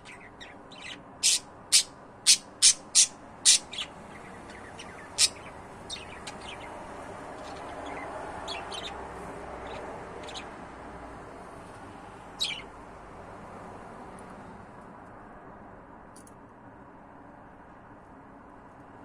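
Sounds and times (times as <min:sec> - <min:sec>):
budgerigar chirping: 0:00.0 - 0:06.8, 0:07.4 - 0:09.0, 0:09.6 - 0:10.6, 0:12.4 - 0:12.7.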